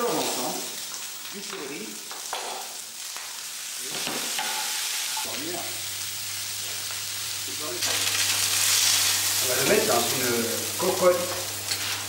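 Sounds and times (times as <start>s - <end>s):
meat sizzling in frying pan: 0.0s - 12.0s
vegetables frying: 0.0s - 12.0s.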